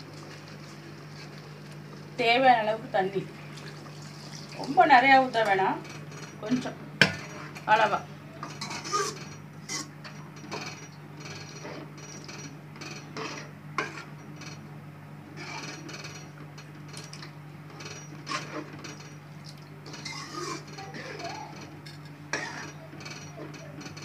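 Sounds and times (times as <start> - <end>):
steady low hum: 0.0 - 24.0
ladle stirring and scraping pan: 8.4 - 10.7, 13.0 - 14.1, 18.1 - 19.0, 19.9 - 22.8.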